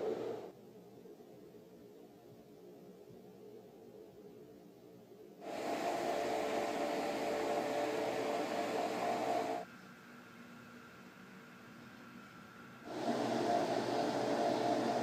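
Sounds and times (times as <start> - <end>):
roller shade motor whirring: 0.0 - 0.5, 5.4 - 15.0.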